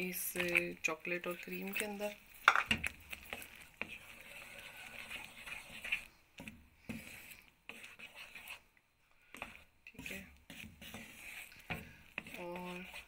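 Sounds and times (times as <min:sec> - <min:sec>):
spatula scraping and squelching mixture: 0:00.0 - 0:13.0.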